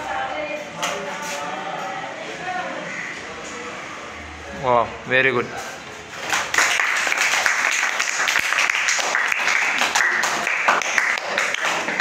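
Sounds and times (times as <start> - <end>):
children clapping: 6.2 - 12.0.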